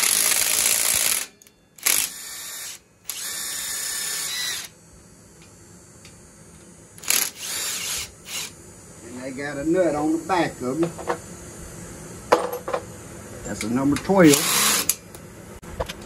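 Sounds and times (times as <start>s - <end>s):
cordless drill spinning out bolts: 0.0s - 4.7s, 7.0s - 8.5s, 14.3s - 15.0s.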